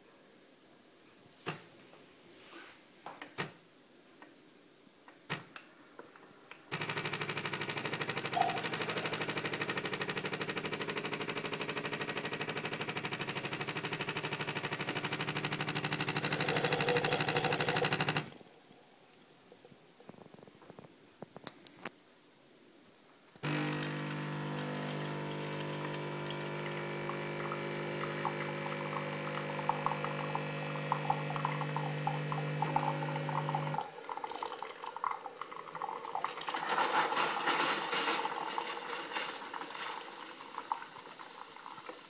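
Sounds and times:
coffee machine pump buzzing: 6.8 - 18.3, 23.4 - 33.9.

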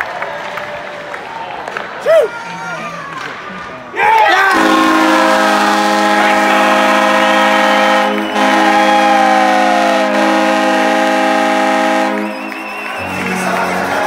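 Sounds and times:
goal horn chord: 4.5 - 14.0.

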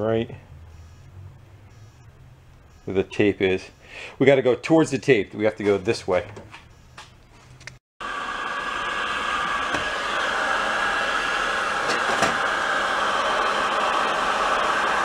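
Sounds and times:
heat gun fan hissing: 8.0 - 15.0.

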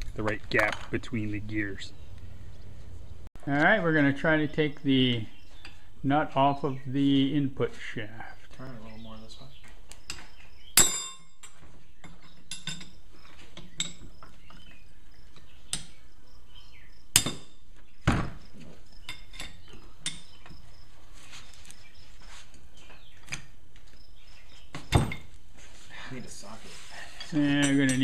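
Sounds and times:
hand tools clinking on metal: 10.1 - 14.6, 19.0 - 20.6, 27.0 - 28.0.

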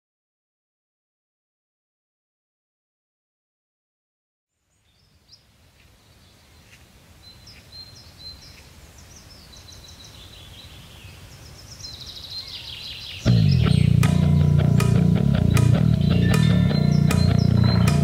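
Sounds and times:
low background noise: 4.5 - 18.0
birds chirping: 4.6 - 18.0.

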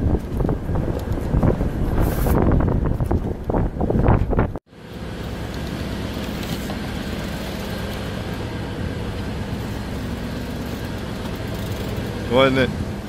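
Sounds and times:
wind buffeting microphone: 0.0 - 4.6
low engine hum: 0.0 - 13.0.

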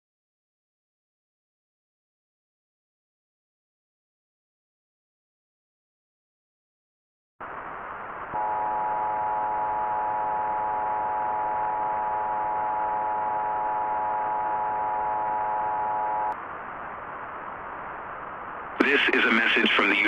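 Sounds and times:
radio static hiss: 7.4 - 20.0
emergency alert tone chord: 8.4 - 16.4.

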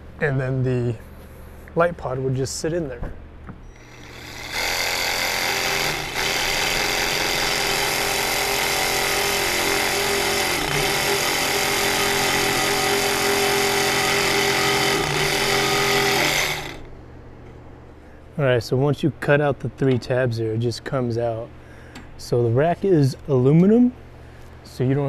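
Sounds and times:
reciprocating saw cutting metal: 3.7 - 16.9.

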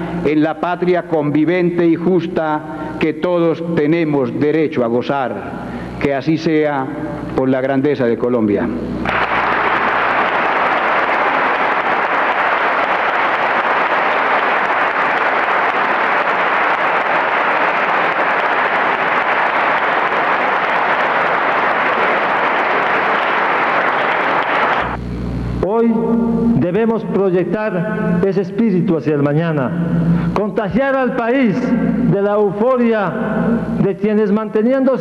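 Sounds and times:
audience applauding: 9.0 - 25.0.

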